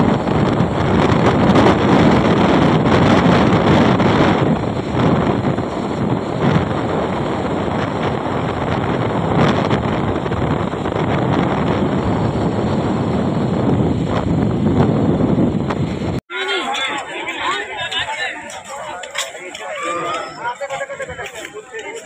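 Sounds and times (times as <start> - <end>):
wind buffeting microphone: 0.0 - 16.2
vehicle road noise: 0.0 - 22.0.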